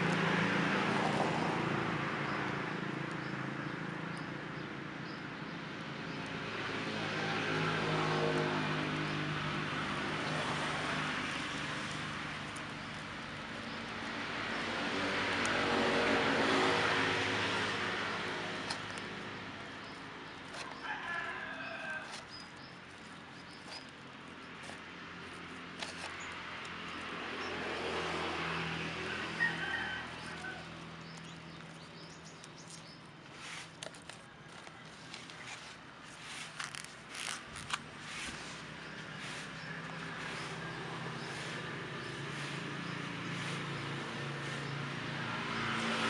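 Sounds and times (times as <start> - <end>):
road traffic passing: 0.0 - 46.0
rooster crowing: 20.6 - 22.3, 28.8 - 30.9.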